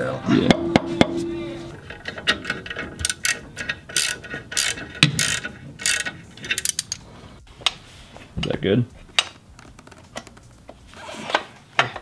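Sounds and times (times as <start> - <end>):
ratchet wrench clicking: 2.2 - 7.0.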